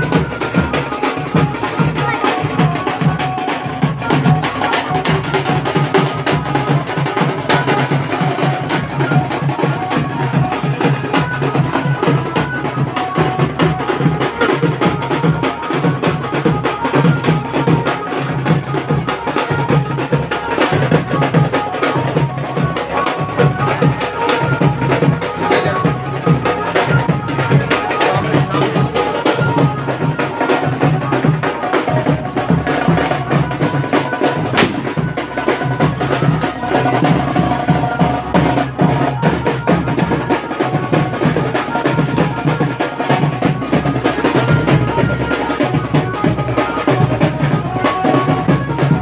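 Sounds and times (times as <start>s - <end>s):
fast continuous drumming: 0.0s - 49.0s
melody over drums: 0.0s - 49.0s.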